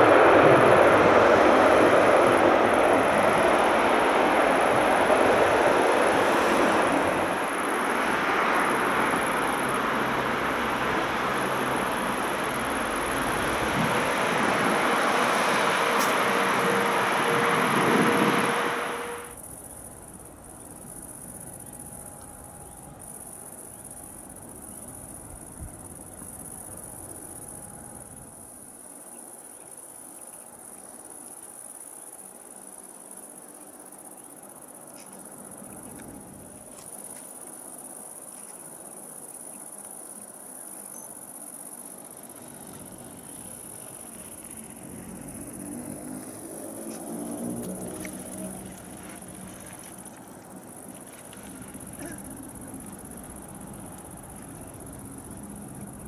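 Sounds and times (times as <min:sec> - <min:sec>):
distant turboprop engines: 0:00.0 - 0:28.4, 0:41.9 - 0:56.0
crickets chirring: 0:00.0 - 0:56.0.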